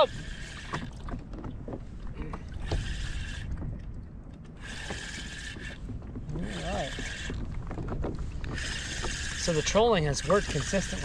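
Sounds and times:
fishing reel spinning: 0:00.0 - 0:00.8, 0:04.6 - 0:05.8, 0:06.4 - 0:07.4, 0:08.4 - 0:11.0
wind and water rumble: 0:00.0 - 0:11.0.

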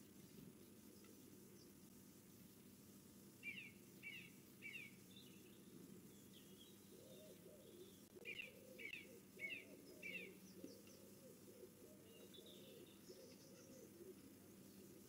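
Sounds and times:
birds chirping: 0:03.4 - 0:15.0
lower wavering bird call: 0:07.0 - 0:14.2.

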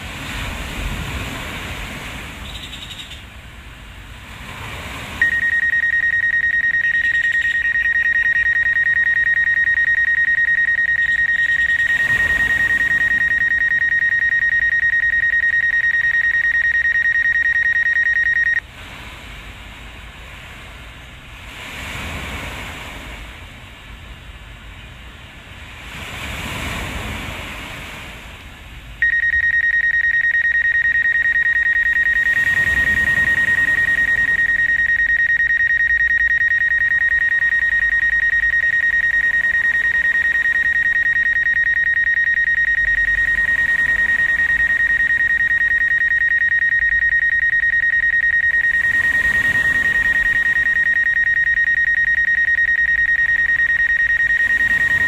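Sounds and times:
high-pitched electronic alarm tone: 0:05.2 - 0:18.6, 0:29.0 - 0:55.0.

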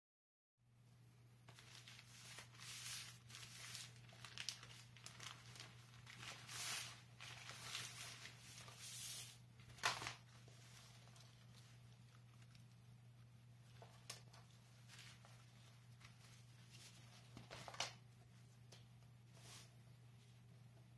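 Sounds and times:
low steady hum: 0:00.6 - 0:20.9
plastic bag crinkling: 0:01.5 - 0:12.8.

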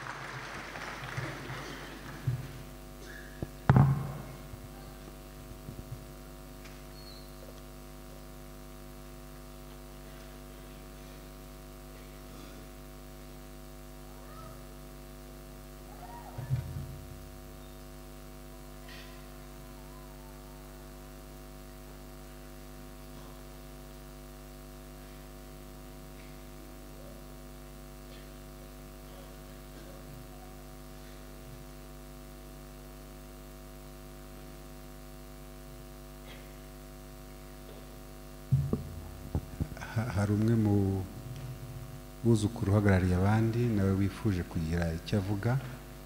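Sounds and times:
electrical mains hum: 0:00.0 - 0:46.0.

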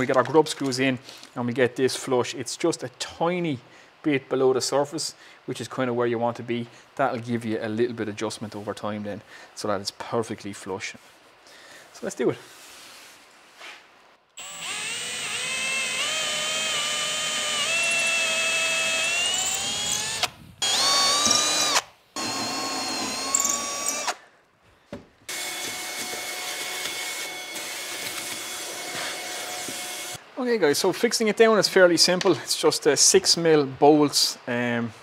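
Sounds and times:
cordless drill boring wood: 0:14.4 - 0:24.2, 0:25.3 - 0:30.2
shop vacuum running: 0:25.3 - 0:30.2.

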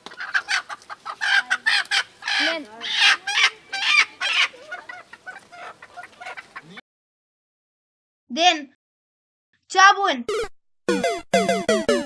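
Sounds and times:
chickens clucking: 0:00.0 - 0:06.8.

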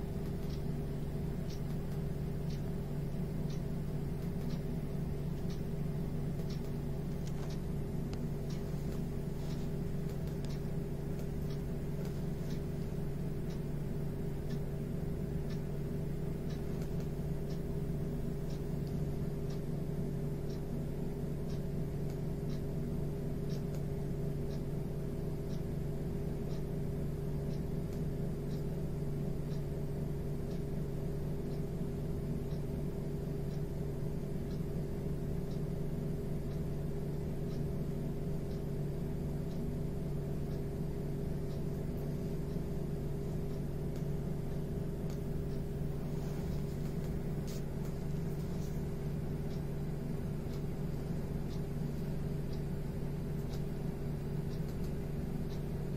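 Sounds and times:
mechanical hum: 0:00.0 - 0:55.9
faint high ticks: 0:00.1 - 0:13.7, 0:39.5 - 0:55.9.

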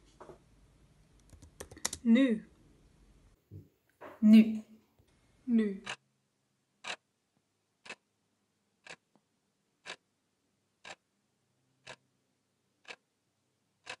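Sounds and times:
clock ticking: 0:05.8 - 0:06.0, 0:06.8 - 0:07.1, 0:07.8 - 0:08.1, 0:08.8 - 0:09.1, 0:09.8 - 0:10.0, 0:10.8 - 0:11.0, 0:11.8 - 0:12.1, 0:12.8 - 0:13.1, 0:13.8 - 0:14.0.

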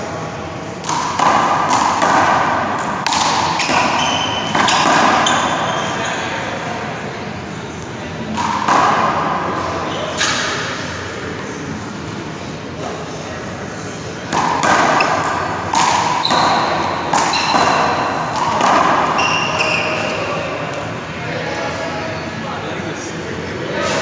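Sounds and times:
handball smacking wall and floor: 0:00.9 - 0:05.5, 0:14.3 - 0:19.8.

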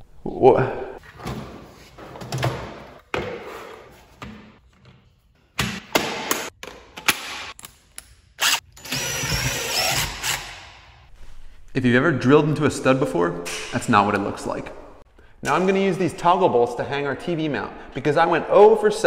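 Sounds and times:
cordless drill drilling into wall: 0:08.4 - 0:10.6.

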